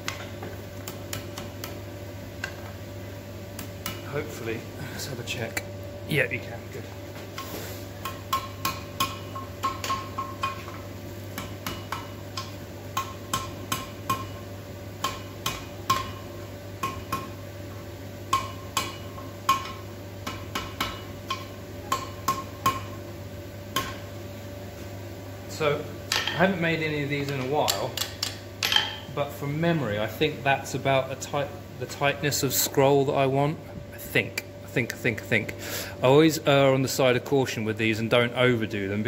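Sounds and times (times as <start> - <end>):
steady low hum: 0.0 - 39.0
hammer striking steel on anvil: 8.0 - 10.8, 11.4 - 14.4, 15.0 - 17.4, 18.3 - 23.0, 23.8 - 24.1.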